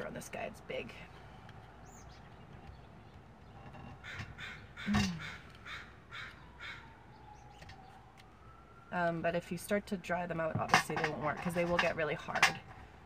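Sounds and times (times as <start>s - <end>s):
crows cawing: 4.0s - 6.9s.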